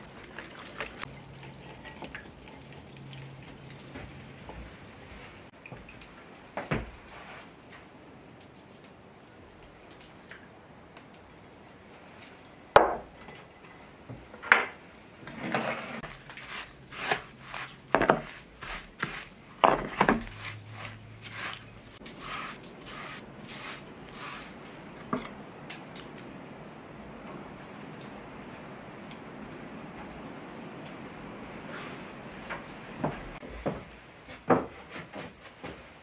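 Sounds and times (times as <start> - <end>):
spoon scraping mixture: 15.9 - 25.4.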